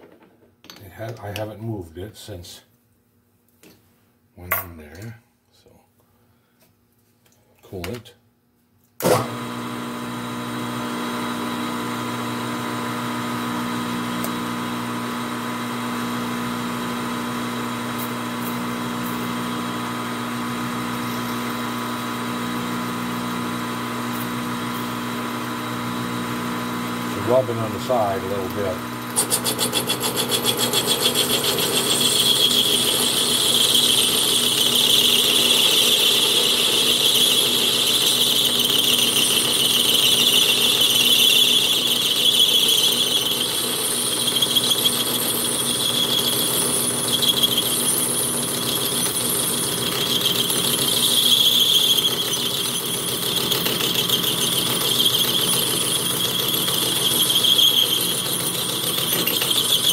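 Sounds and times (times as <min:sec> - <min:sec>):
lathe spindle running: 0:09.2 - 0:59.9
lathe parting blade squealing: 0:27.2 - 0:59.9.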